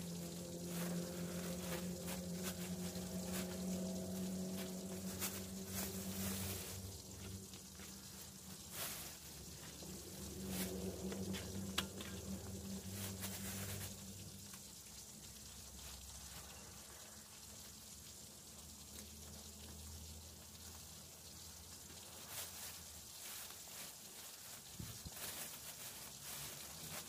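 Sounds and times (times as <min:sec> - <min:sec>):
plastic bag crinkling: 0:00.0 - 0:14.4, 0:22.1 - 0:27.0
low steady hum: 0:00.0 - 0:27.0.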